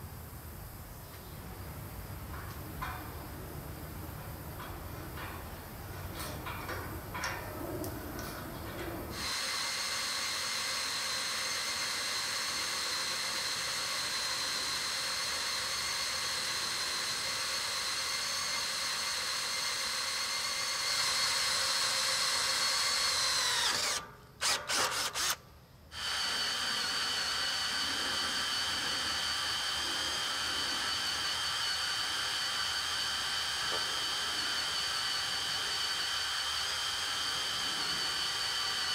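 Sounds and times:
power drill whine: 0:09.1 - 0:38.9
drill trigger blips: 0:09.2 - 0:25.4.

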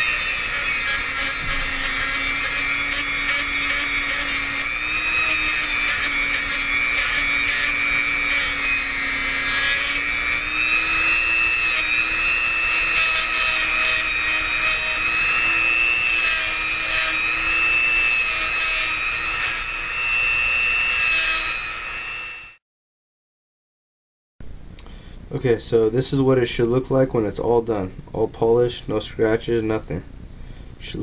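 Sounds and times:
rotary tool sanding metal: 0:00.0 - 0:22.6.

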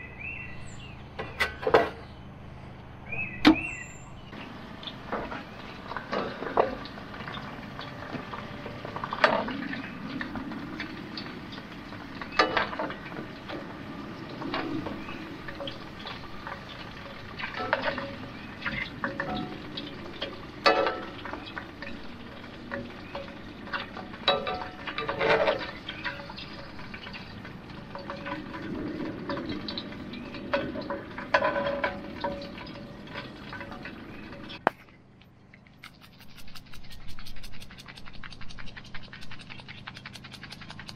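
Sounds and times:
oil sizzling: 0:04.4 - 0:34.7.

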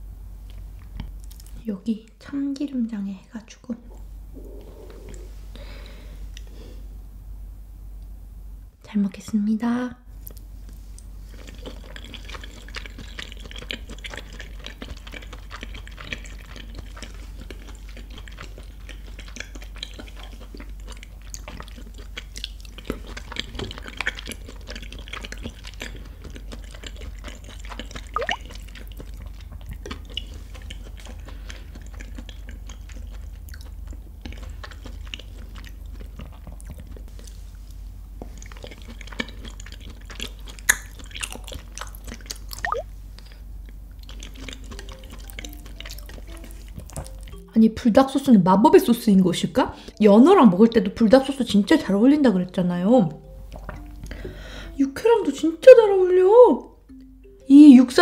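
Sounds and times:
wet chewing mouth sounds: 0:03.9 - 0:05.4, 0:10.2 - 0:47.5, 0:48.8 - 0:54.4
sticky mouth clicks: 0:40.6 - 0:42.8.

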